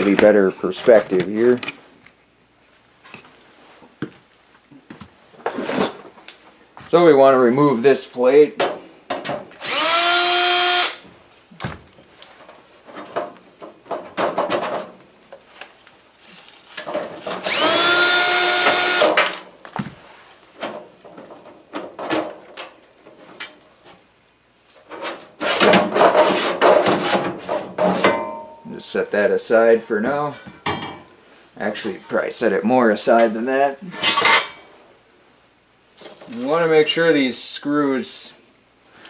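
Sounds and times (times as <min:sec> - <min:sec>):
cordless drill whining: 0:09.6 - 0:11.0, 0:17.4 - 0:19.2.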